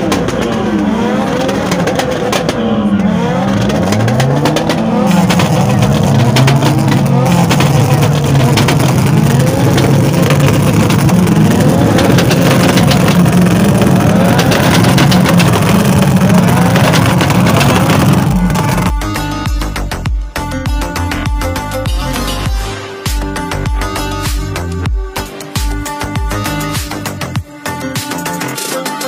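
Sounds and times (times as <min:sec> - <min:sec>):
sharp engine crackles: 0:00.0 - 0:20.1
car engine revving: 0:00.0 - 0:27.4.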